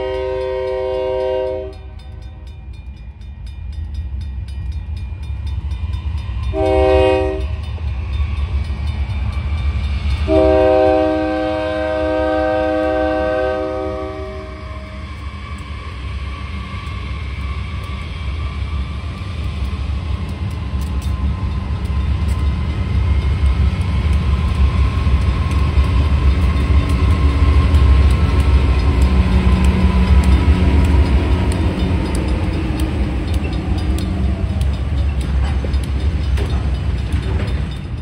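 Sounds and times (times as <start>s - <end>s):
diesel locomotives rumbling past: 0.0s - 38.0s
freight cars rolling by: 14.9s - 38.0s.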